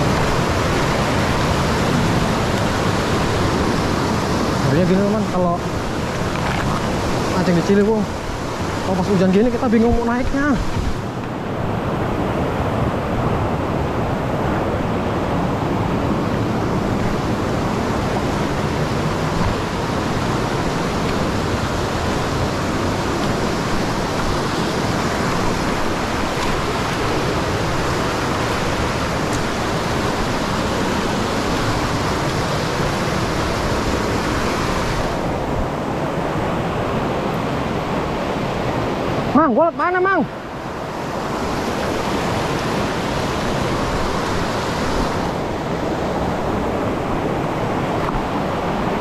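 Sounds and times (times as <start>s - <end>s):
river rapids roaring over rocks: 0.0s - 49.0s.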